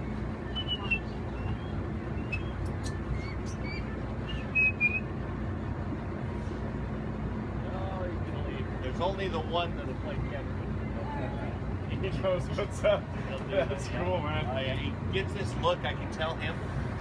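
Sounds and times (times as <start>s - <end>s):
boat engine humming: 0.0s - 17.0s
birds chirping: 0.1s - 5.1s.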